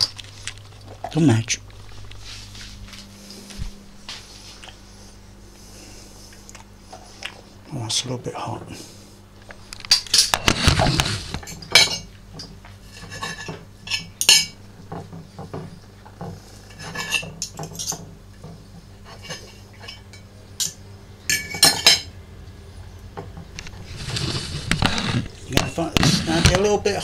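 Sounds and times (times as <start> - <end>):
fork scraping a ceramic plate: 23.8 - 25.3.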